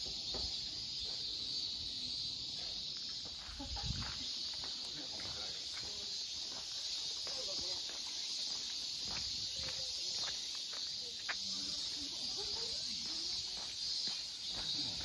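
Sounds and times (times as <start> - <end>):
insects chorus: 0.0 - 15.0
footsteps on path: 0.1 - 15.0.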